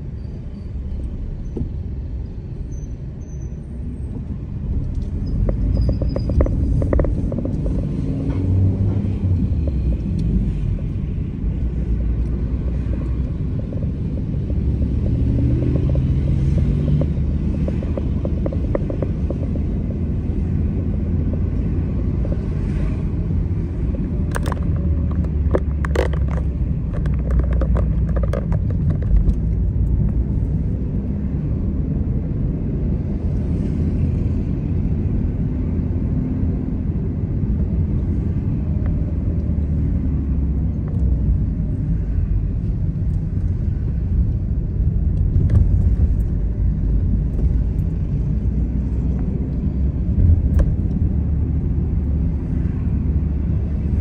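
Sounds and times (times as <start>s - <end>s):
car engine and road noise: 0.0s - 54.0s.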